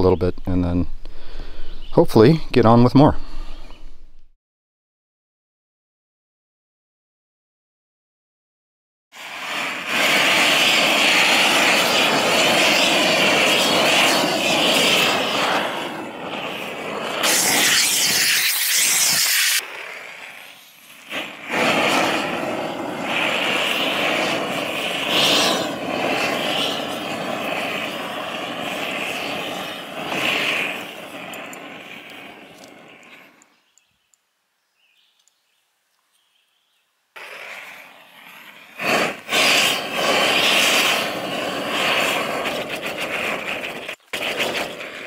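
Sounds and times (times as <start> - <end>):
propane torch rushing: 9.1 - 33.6, 37.2 - 45.0
sharp hiss: 9.2 - 33.5, 37.2 - 45.0.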